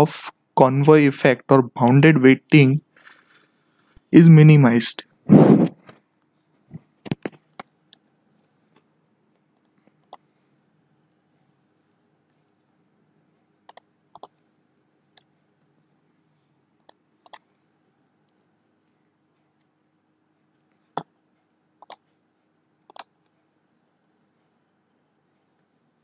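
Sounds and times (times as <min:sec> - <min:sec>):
computer mouse clicks: 0:09.6 - 0:10.3, 0:13.7 - 0:14.4, 0:16.8 - 0:17.5, 0:21.8 - 0:22.2, 0:22.8 - 0:23.2
computer keyboard typing: 0:13.7 - 0:14.4, 0:16.8 - 0:17.5, 0:21.8 - 0:22.1, 0:22.9 - 0:23.1.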